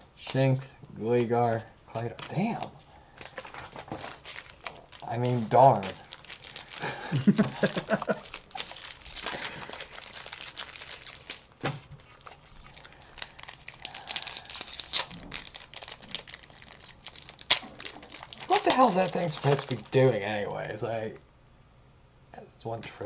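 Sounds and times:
cards being shuffled: 2.0s - 13.4s, 16.8s - 20.2s
foil wrapper crinkling: 2.3s - 20.8s.

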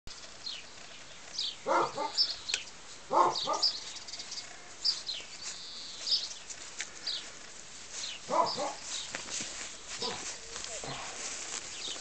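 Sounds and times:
puppy barks: 1.6s - 2.2s, 3.1s - 3.7s, 8.3s - 8.8s.

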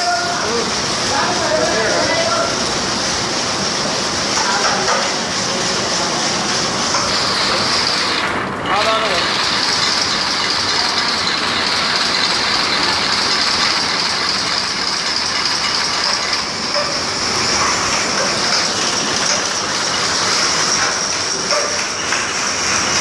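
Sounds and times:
tufting machine clattering: 0.2s - 23.0s.

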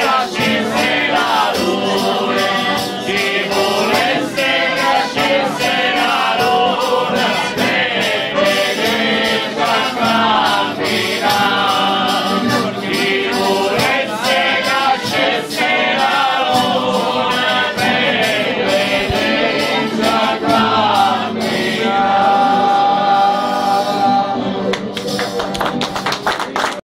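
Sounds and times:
men singing a folk chant: 0.0s - 24.5s
button accordion: 0.0s - 25.2s.

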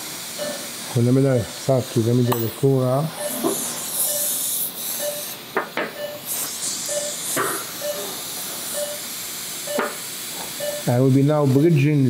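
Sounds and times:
patient monitor pulse beep: 0.4s - 0.7s, 2.2s - 2.6s, 3.2s - 4.4s, 5.0s - 9.1s, 9.7s - 10.0s, 10.6s - 11.0s.

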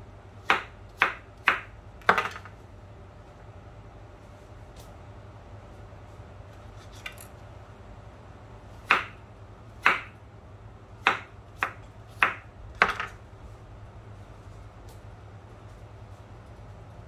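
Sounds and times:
knife chopping on plastic board: 0.4s - 2.5s, 8.8s - 9.2s, 9.8s - 10.2s, 11.0s - 13.2s.

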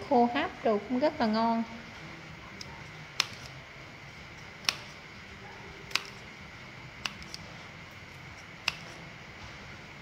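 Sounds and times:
scissors snipping: 2.5s - 3.6s, 4.4s - 5.0s, 5.8s - 6.3s, 7.0s - 7.5s, 8.1s - 9.1s.

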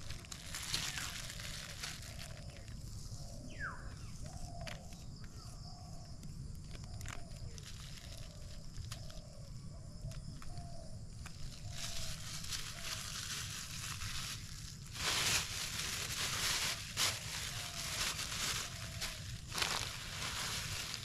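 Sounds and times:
plastic sheet crackling: 0.0s - 2.8s, 11.4s - 21.0s.

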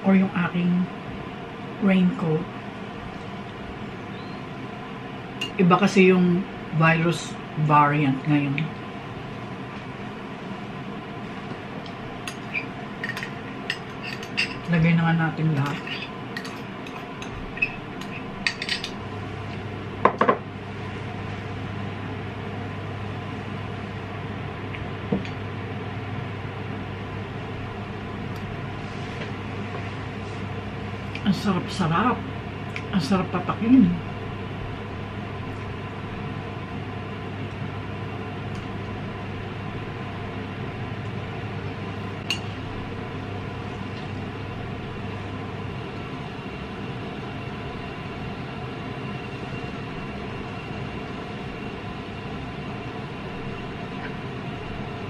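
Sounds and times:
steady low hum: 0.0s - 55.0s
cutlery and dishes clinking: 12.3s - 14.7s, 17.6s - 19.0s.

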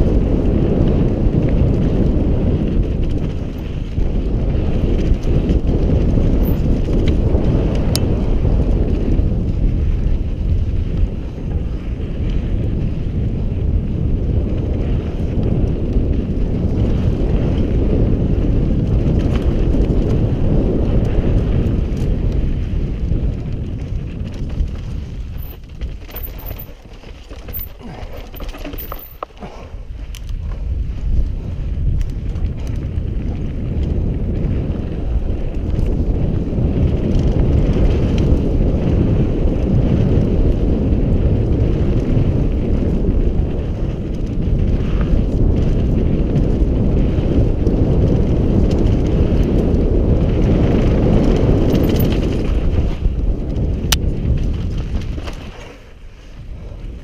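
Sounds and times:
bike clicks and rattles: 0.0s - 57.0s
bike tyres rumbling over dirt: 0.0s - 57.0s
wind rushing over microphone: 0.0s - 57.0s.

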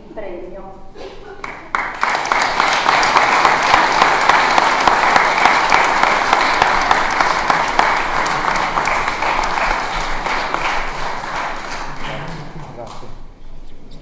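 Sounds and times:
audience applauding: 1.4s - 13.2s.

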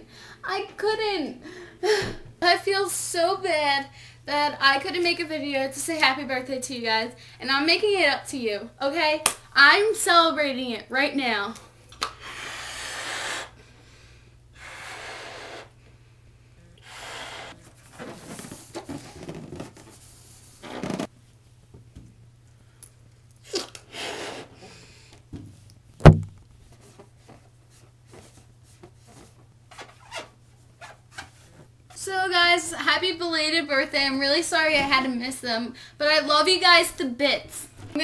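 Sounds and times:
person blowing up balloon: 12.0s - 13.6s, 14.6s - 15.8s, 16.8s - 17.6s, 23.4s - 24.8s
rubbing and handling balloon: 16.8s - 21.1s, 26.1s - 32.0s
sharp loud thump: 26.0s - 26.4s.

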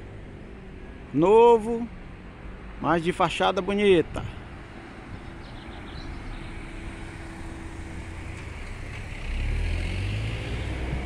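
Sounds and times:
city street traffic: 0.0s - 11.0s
vehicle engine rumble passing: 4.2s - 11.0s.

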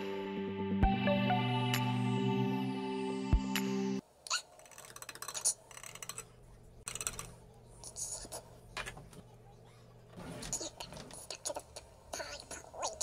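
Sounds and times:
background music: 0.0s - 4.0s.

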